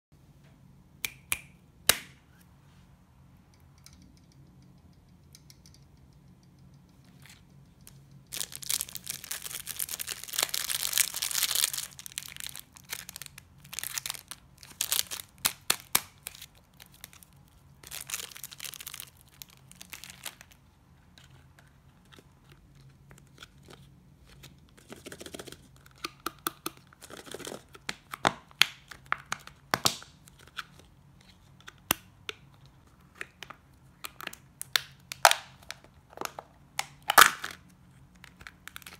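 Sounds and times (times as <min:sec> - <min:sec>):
packaging crinkling and tearing: 0:08.3 - 0:20.6, 0:35.1 - 0:38.9.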